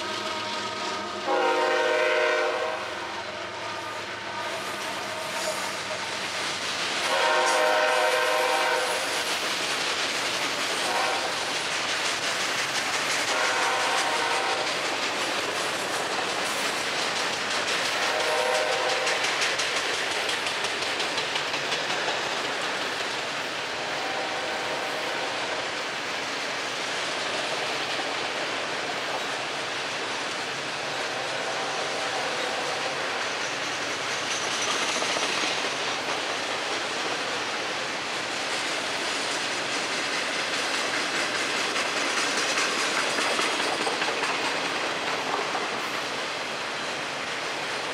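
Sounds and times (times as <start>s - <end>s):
multi-note train horn: 0.0s - 5.9s, 7.0s - 9.1s, 10.8s - 11.5s, 13.3s - 14.7s, 18.0s - 19.2s, 23.8s - 25.5s, 30.9s - 33.2s
train wheels rumbling and clattering: 0.0s - 47.9s.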